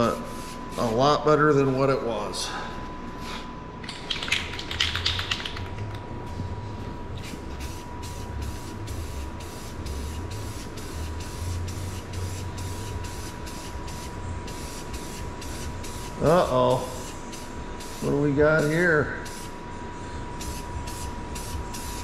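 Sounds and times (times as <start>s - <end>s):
spray paint can spraying: 3.9s - 5.7s, 7.2s - 19.5s, 20.4s - 22.0s.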